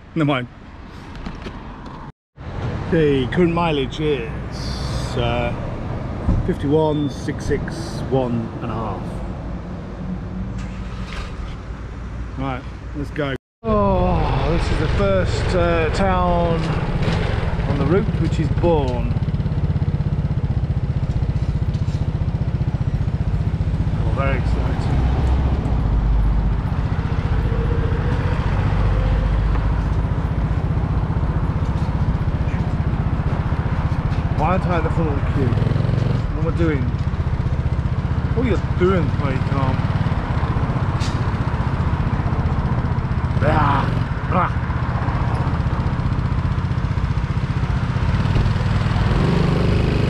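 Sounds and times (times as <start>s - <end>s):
motorcycle engine at low revs: 16.6s - 50.0s.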